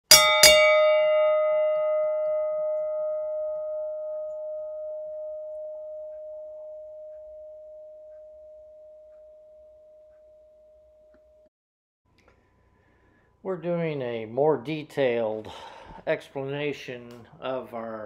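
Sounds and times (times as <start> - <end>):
bell ringing: 0.0 - 11.1.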